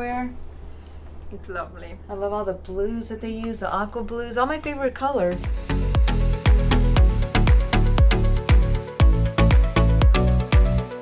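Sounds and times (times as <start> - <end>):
kick drum beat: 5.4 - 10.9
electronic dance music: 5.4 - 11.0.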